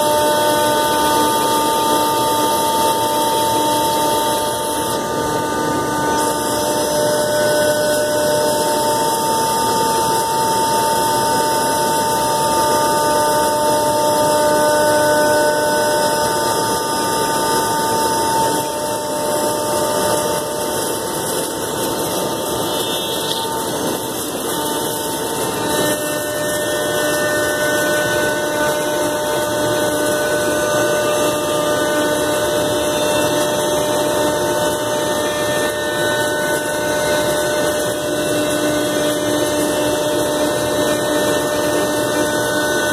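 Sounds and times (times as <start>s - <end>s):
cutter routing plastic: 0.0s - 42.9s
router spindle whine: 0.0s - 42.9s.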